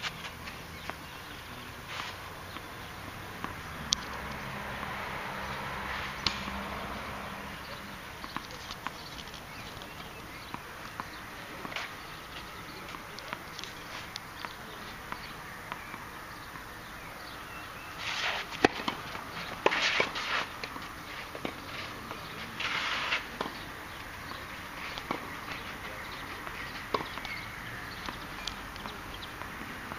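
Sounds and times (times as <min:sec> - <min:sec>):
shoes scraping on clay: 0:01.8 - 0:02.7, 0:18.0 - 0:23.7
racket hitting ball: 0:02.5 - 0:05.0, 0:05.8 - 0:16.1, 0:18.2 - 0:27.4
light ball ticks: 0:03.4 - 0:05.0, 0:06.2 - 0:06.8, 0:08.1 - 0:16.0, 0:24.9 - 0:25.3, 0:26.1 - 0:29.9.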